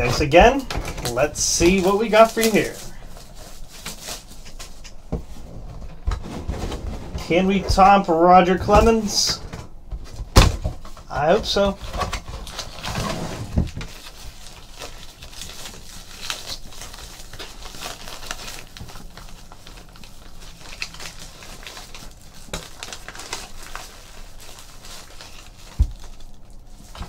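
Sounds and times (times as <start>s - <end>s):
foil pouch crinkling: 0.0s - 5.0s, 11.1s - 13.1s, 13.7s - 27.0s.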